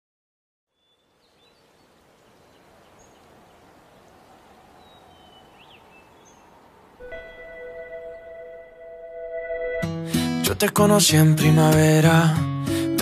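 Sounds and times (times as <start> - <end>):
background hiss: 0.8 - 8.7.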